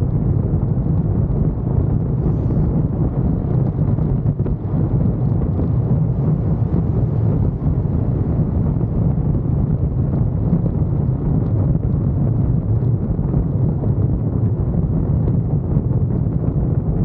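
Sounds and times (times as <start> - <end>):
wind buffeting microphone: 0.0 - 17.0
car road noise: 2.1 - 11.5.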